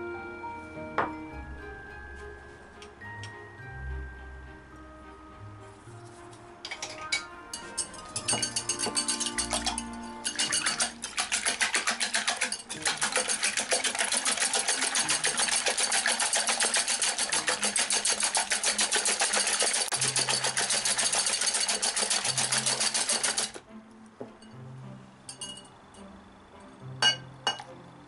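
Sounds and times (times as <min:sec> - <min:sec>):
whisk clicking against glass bowl: 0:07.6 - 0:23.6.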